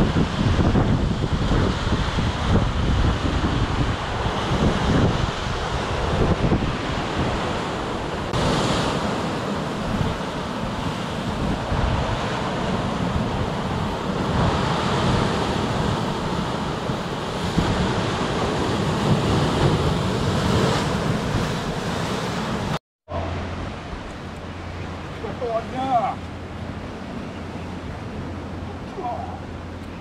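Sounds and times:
surf breaking on rocks: 0.0s - 22.8s
wind buffeting microphone: 0.0s - 30.0s.

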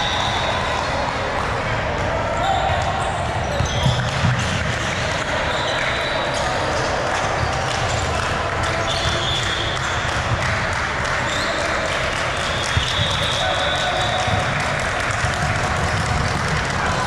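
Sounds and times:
many voices in echoing hall: 0.0s - 17.0s
balls thudding on court floor: 2.0s - 4.8s, 12.6s - 17.0s
shoe squeaks: 2.4s - 4.1s, 5.5s - 6.6s, 11.3s - 11.7s.

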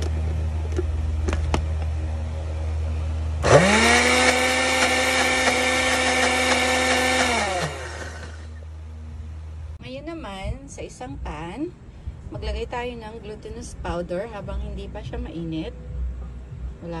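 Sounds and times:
low hum: 0.0s - 17.0s
blender motor whining: 3.4s - 8.6s.

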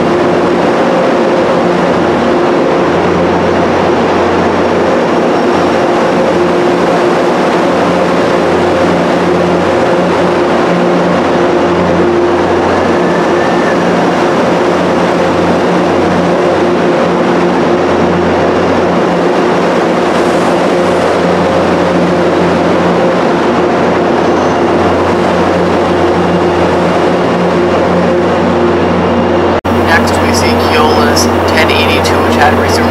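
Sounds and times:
diesel locomotive engine drone: 0.0s - 32.9s
train moving slowly: 29.7s - 32.9s.

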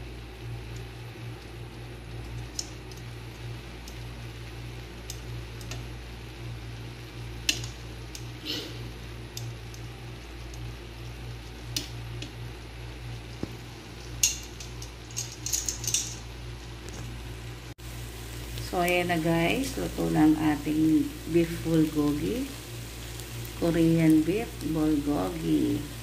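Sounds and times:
meat sizzling: 0.0s - 26.0s
steady low hum: 0.0s - 26.0s
tongs clicking against pan: 2.3s - 3.1s, 7.4s - 8.3s, 9.3s - 9.8s, 11.7s - 12.4s.

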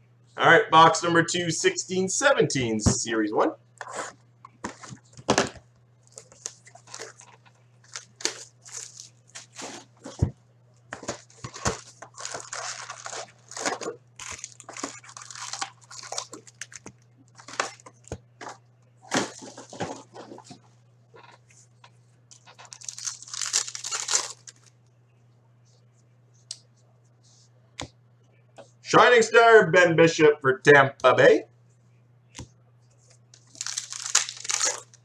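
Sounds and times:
foil wrapper tearing: 6.0s - 9.9s, 11.0s - 17.8s, 22.6s - 24.7s, 33.4s - 35.0s
foil packs rustling and crinkling: 6.0s - 10.3s, 11.0s - 17.8s, 22.4s - 24.7s, 33.4s - 35.0s.

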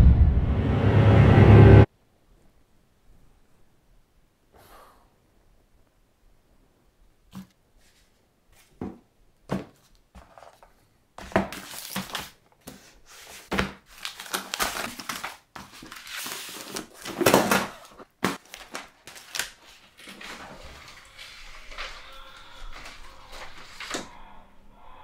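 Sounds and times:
paper rustling and crinkling: 7.3s - 24.3s.

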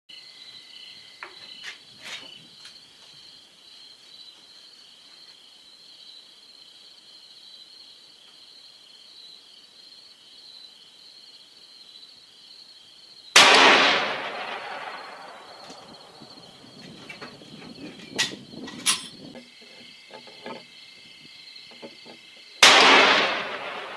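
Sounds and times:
insects chirring: 0.1s - 23.9s
rifle shot: 13.4s - 16.2s, 22.6s - 23.9s.

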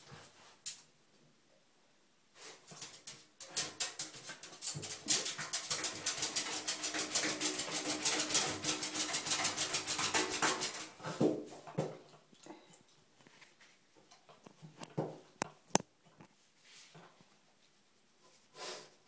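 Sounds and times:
dog claws scraping a bathtub: 2.7s - 11.4s.

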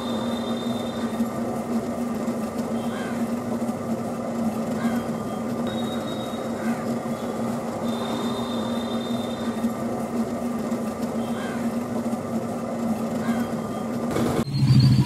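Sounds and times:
faint high whine: 0.0s - 1.4s, 4.8s - 9.8s
potter's wheel spinning: 0.0s - 14.5s.

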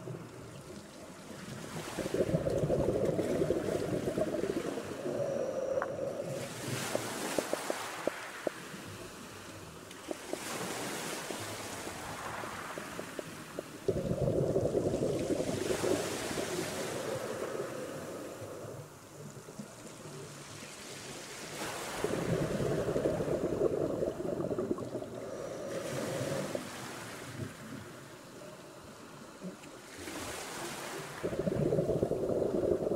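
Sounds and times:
gurgling exhaled bubbles: 1.6s - 8.7s, 10.1s - 19.8s, 21.6s - 27.8s, 30.9s - 32.9s
regulator hissing inhalations: 2.0s - 8.6s.

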